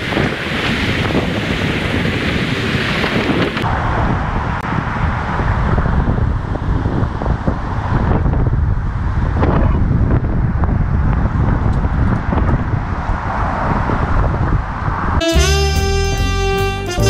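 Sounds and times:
wind buffeting microphone: 0.0 - 15.2.

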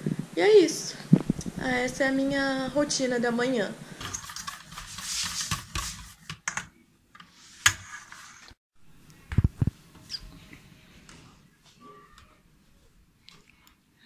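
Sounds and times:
kitchen utensils clattering: 4.0 - 6.1.

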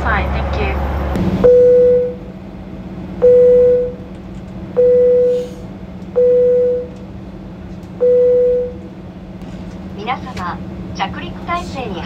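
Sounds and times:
low hum: 0.0 - 12.0
electronic beep: 1.4 - 2.2.

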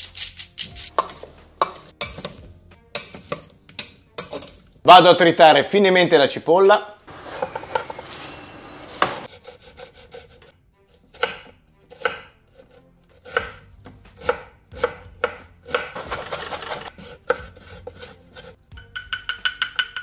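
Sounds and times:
knife chopping on wooden board: 7.1 - 9.3, 11.1 - 12.3, 13.2 - 13.6, 14.2 - 18.1.

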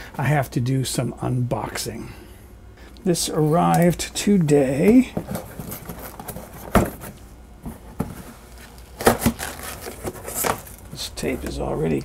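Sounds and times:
box cutter slitting packing tape: 9.0 - 10.8.

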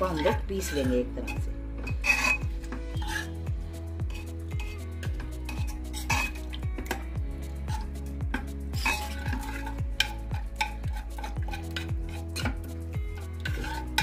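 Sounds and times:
spoon scraping a pressure cooker: 0.0 - 3.4, 4.0 - 14.0
background music with steady beat: 0.0 - 14.0.

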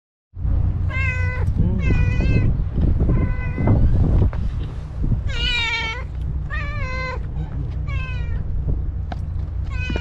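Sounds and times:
steady low rumble: 0.4 - 10.0
cat meowing: 0.9 - 3.9, 5.2 - 7.2, 7.8 - 8.5, 9.7 - 10.0.

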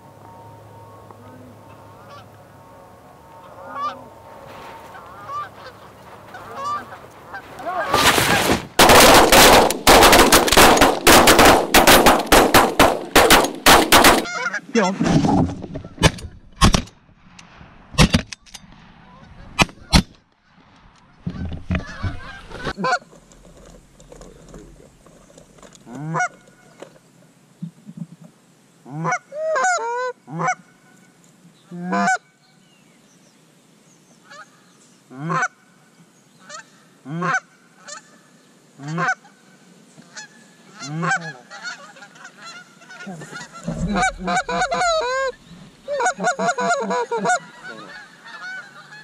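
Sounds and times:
geese honking: 0.8 - 14.8, 21.2 - 23.0, 25.9 - 26.8, 28.9 - 31.0, 31.8 - 32.3, 35.1 - 35.6, 36.4 - 38.2, 38.8 - 49.0.

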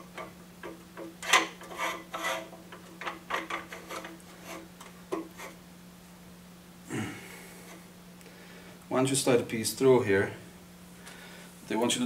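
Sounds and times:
metal bars scraping through poles: 1.2 - 4.7.

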